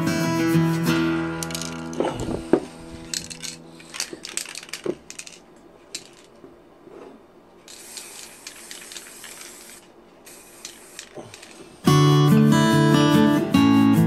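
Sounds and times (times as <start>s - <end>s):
spray paint can hissing: 1.4s - 5.4s, 7.6s - 12.0s.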